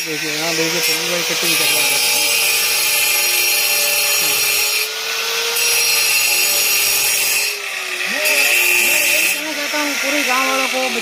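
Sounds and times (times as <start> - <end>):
power cutter grinding: 0.0 - 11.0.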